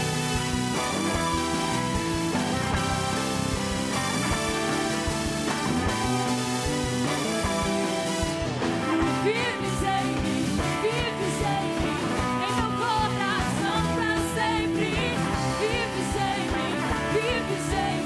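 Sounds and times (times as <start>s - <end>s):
worship band music: 0.0s - 18.0s
person singing: 8.8s - 18.0s.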